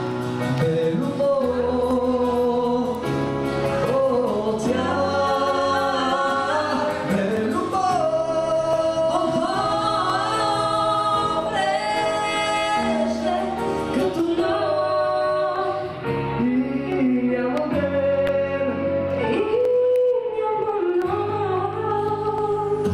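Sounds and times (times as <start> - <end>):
woman and man singing duet: 0.4 - 22.9.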